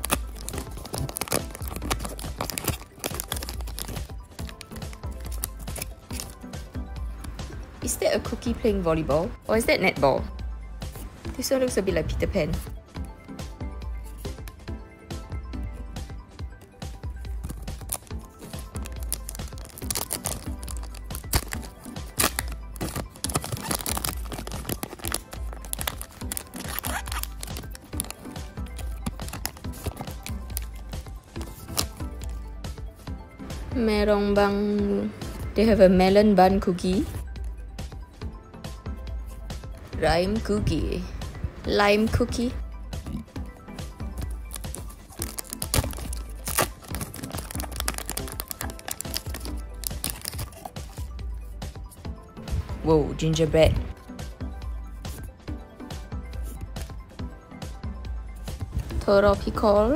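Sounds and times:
foil pack crinkling and tearing: 0:00.0 - 0:06.4, 0:17.4 - 0:32.4, 0:44.2 - 0:51.1
background music: 0:00.0 - 0:59.9.

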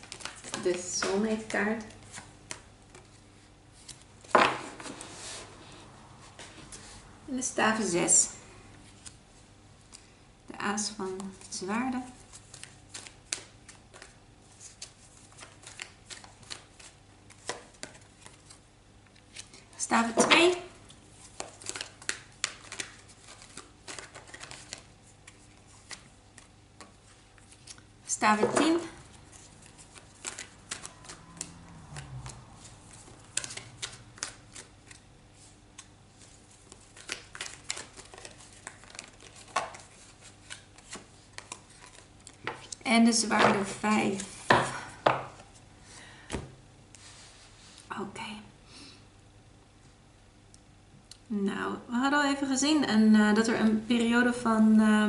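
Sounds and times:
cards being shuffled: 0:00.0 - 0:05.4, 0:12.2 - 0:45.6.

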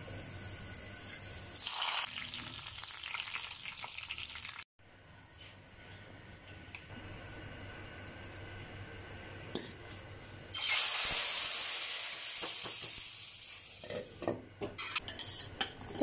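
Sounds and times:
hot oil sizzling hiss: 0:00.0 - 0:04.6, 0:10.5 - 0:14.3
faint frying: 0:00.0 - 0:05.6, 0:09.4 - 0:15.9.

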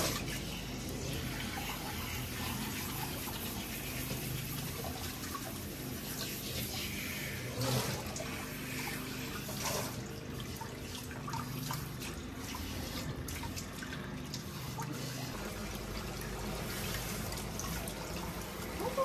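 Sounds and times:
water spraying and splashing: 0:00.0 - 0:19.0.

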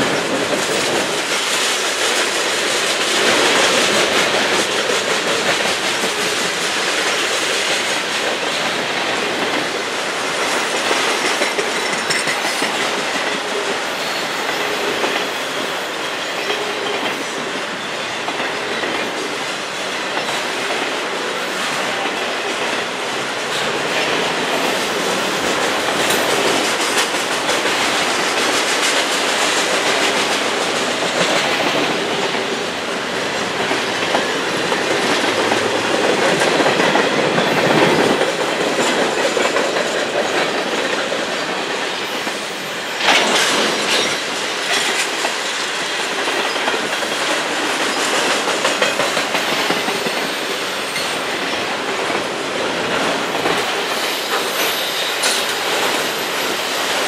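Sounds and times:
train wheels clattering on rails: 0:00.0 - 0:57.0.

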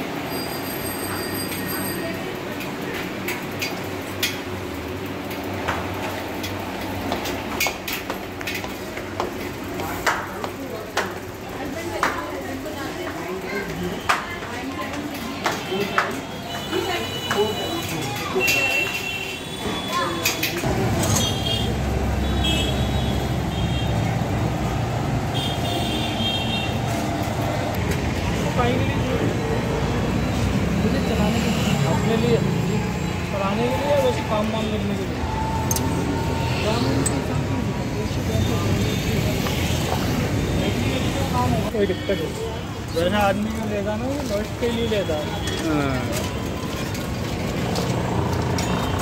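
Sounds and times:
bicycle clicks and knocks: 0:02.4 - 0:19.2, 0:45.3 - 0:49.0
vehicle engine rumble: 0:45.4 - 0:49.0.

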